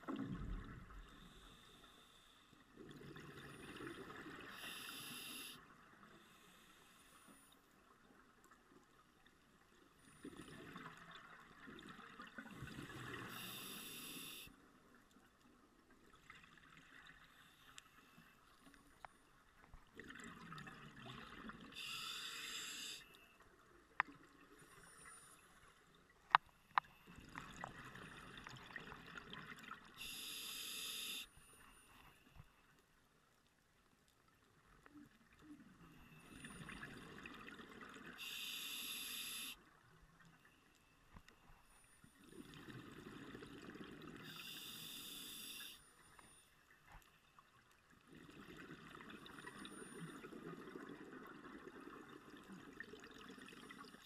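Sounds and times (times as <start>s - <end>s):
regulator breathing underwater: 4.5s - 5.6s, 13.2s - 14.5s, 21.7s - 23.1s, 30.0s - 31.4s, 38.2s - 39.6s, 44.2s - 45.9s.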